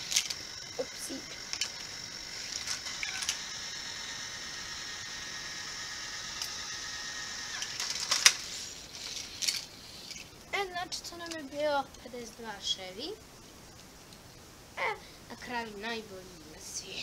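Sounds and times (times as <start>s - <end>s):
toy car clattering down plastic ramps: 0.0s - 5.0s, 5.7s - 9.7s
small motor whine: 0.0s - 10.4s.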